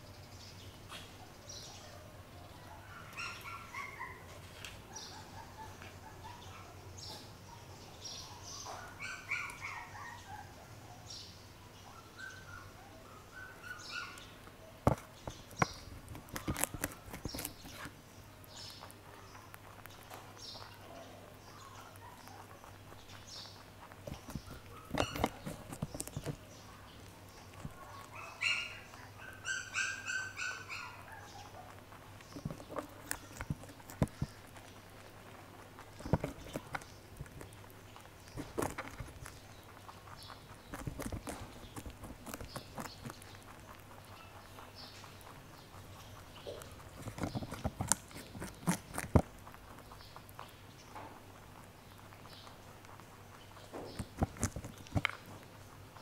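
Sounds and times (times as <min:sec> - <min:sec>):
birds chirping: 0:00.0 - 0:56.0
rabbit crunching cauliflower: 0:13.5 - 0:56.0.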